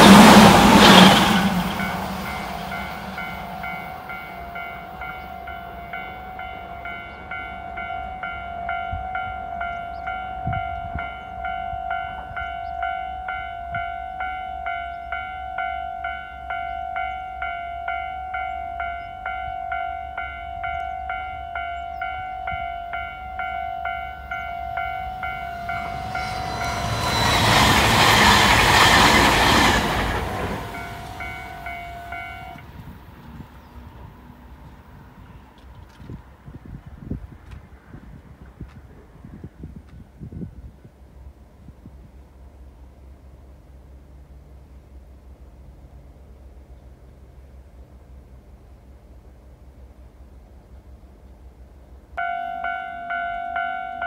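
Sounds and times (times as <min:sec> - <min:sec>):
loud rushing noise: 0:00.0 - 0:03.1
crossing warning bell dinging: 0:00.0 - 0:33.4, 0:52.2 - 0:54.0.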